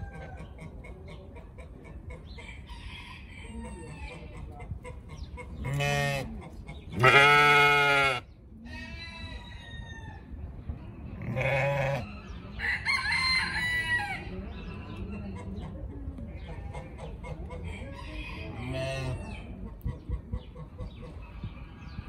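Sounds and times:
chickens clucking: 0.0 - 7.1, 12.0 - 22.0
goats bleating: 5.7 - 6.3, 7.0 - 8.2, 11.3 - 12.0.

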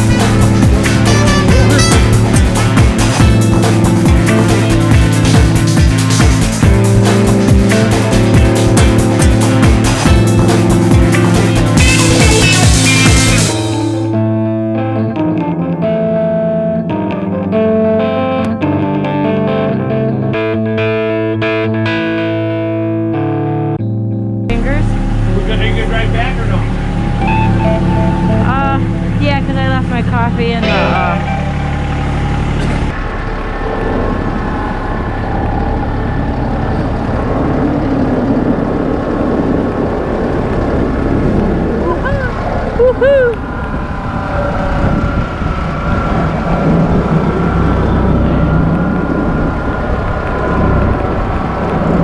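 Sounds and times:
tractor engine running: 0.0 - 14.1, 24.5 - 52.0
distorted electric guitar and bass: 0.0 - 37.2, 39.8 - 52.0
wind buffeting microphone: 33.8 - 52.0.

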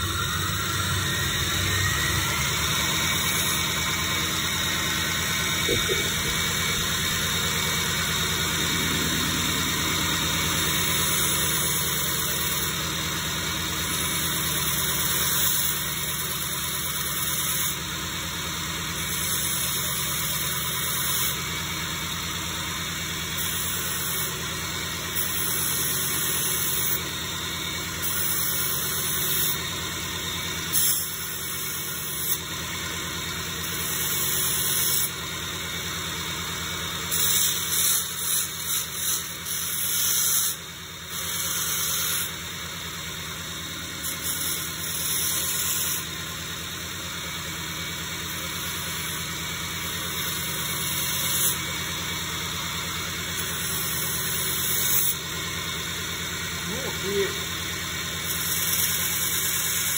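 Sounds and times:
belt grinder humming: 0.0 - 12.9, 37.0 - 42.4, 43.8 - 46.4, 58.2 - 59.9
knife hissing on grinder belt: 2.6 - 12.8, 37.1 - 42.3, 44.0 - 46.1, 50.0 - 51.6, 58.2 - 59.9.

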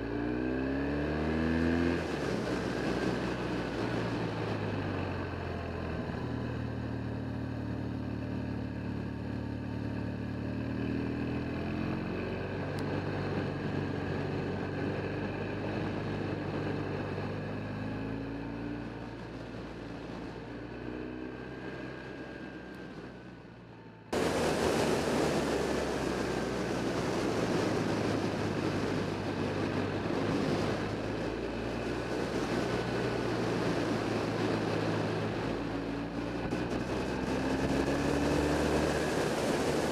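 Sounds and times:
wind rushing on microphone: 24.1 - 39.9
motorcycle engine revving: 24.2 - 39.9.

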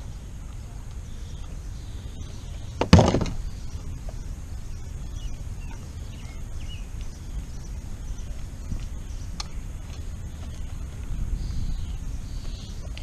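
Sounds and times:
faint bird chirps: 0.0 - 13.0
sharp knock with rattle: 2.8 - 3.4.

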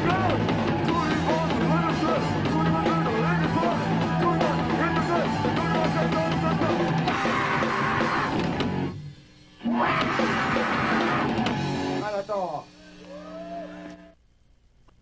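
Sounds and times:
electric guitar: 0.0 - 9.0, 9.6 - 12.0
rock band playing live: 0.0 - 12.5.

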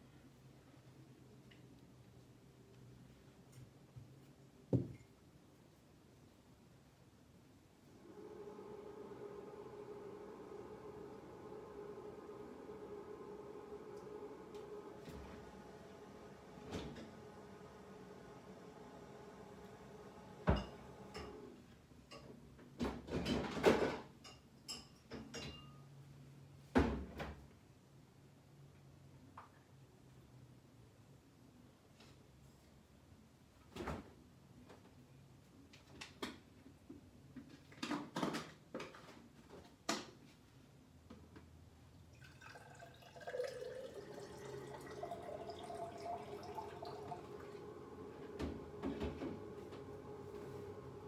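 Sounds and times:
household objects knocking: 4.7 - 5.0
water running in kitchen: 8.0 - 21.5, 42.0 - 49.4.

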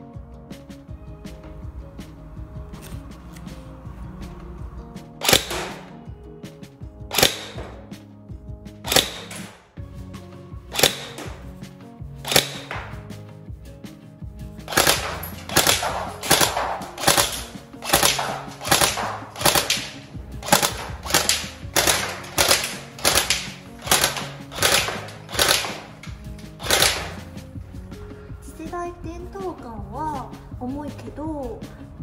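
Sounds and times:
airsoft gun shots: 5.2 - 6.1, 7.1 - 8.0, 8.8 - 9.8, 10.7 - 11.6, 12.2 - 13.2, 14.7 - 27.5.

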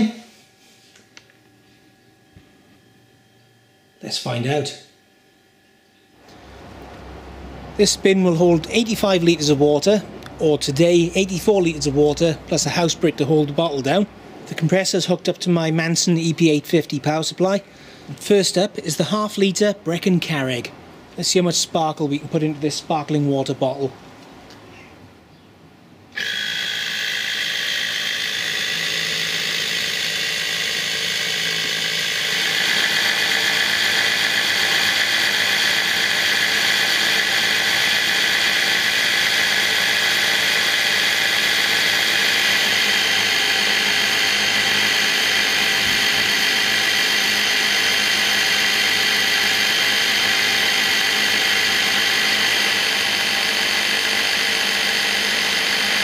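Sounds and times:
air compressor whining buzz: 0.0 - 19.3, 26.1 - 56.0.

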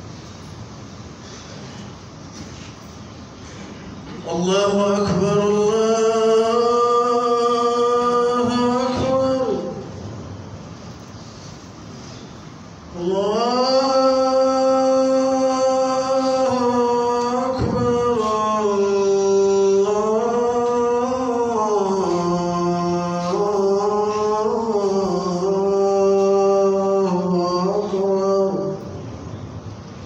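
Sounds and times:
man chanting call to prayer: 4.2 - 10.1, 12.9 - 29.2.

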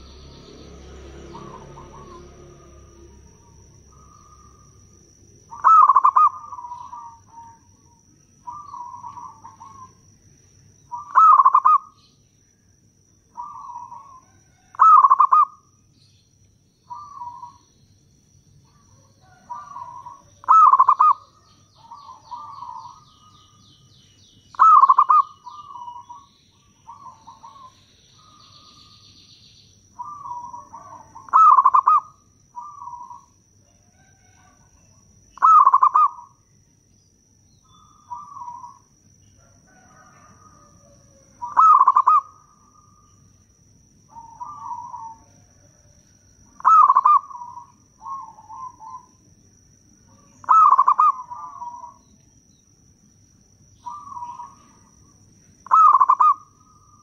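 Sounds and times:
dove cooing: 1.2 - 10.2, 10.8 - 12.0, 13.3 - 15.7, 16.9 - 17.7, 18.6 - 23.6, 24.5 - 29.0, 30.0 - 36.4, 37.7 - 43.2, 44.1 - 49.2, 50.1 - 52.0, 53.8 - 57.0.

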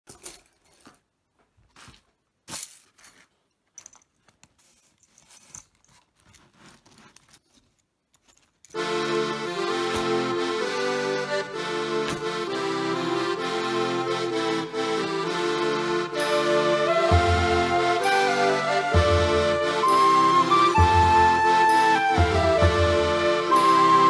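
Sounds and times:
background music with sustained tones: 8.8 - 24.0.

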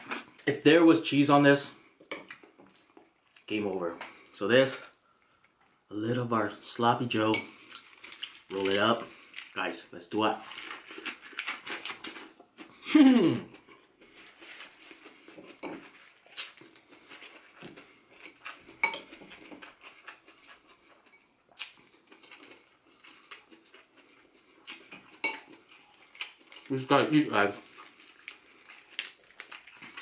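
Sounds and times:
person chewing lettuce: 7.6 - 9.6, 10.4 - 12.9, 13.5 - 26.9, 27.5 - 30.0.

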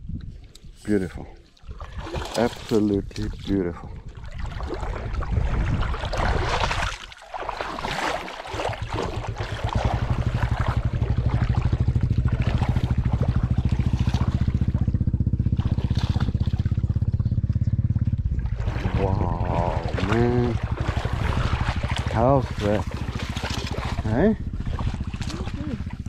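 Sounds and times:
engine throbbing: 8.7 - 26.0.

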